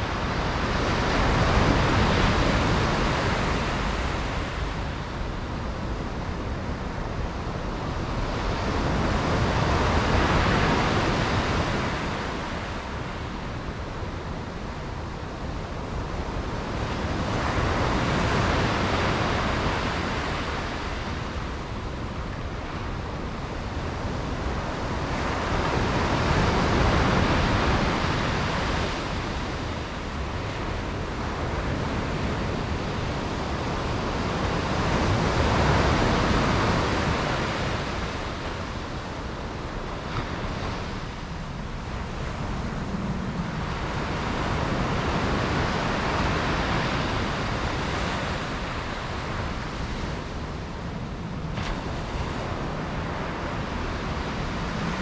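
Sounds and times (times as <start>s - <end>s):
sea waves breaking on shore: 0.0s - 55.0s.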